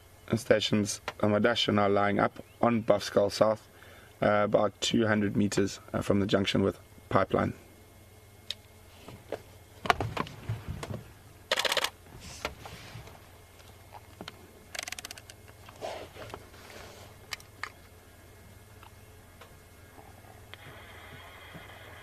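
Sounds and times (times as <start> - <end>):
short rapid rattles: 11.5 - 12.0.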